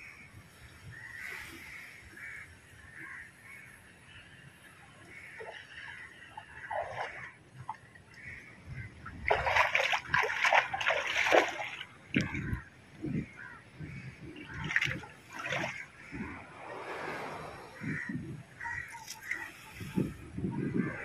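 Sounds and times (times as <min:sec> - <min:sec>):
sea water splashing on rocks: 0:09.2 - 0:12.6
crows cawing: 0:12.3 - 0:14.9, 0:17.7 - 0:19.5.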